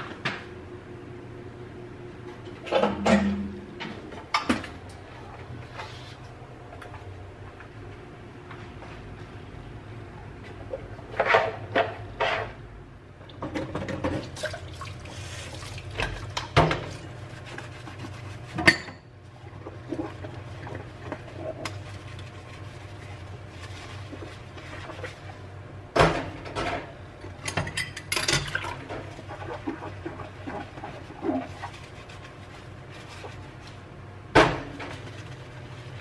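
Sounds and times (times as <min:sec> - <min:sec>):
dishes clinking in a metal sink: 0:02.6 - 0:04.8, 0:15.7 - 0:17.0, 0:18.5 - 0:19.1, 0:26.0 - 0:29.8.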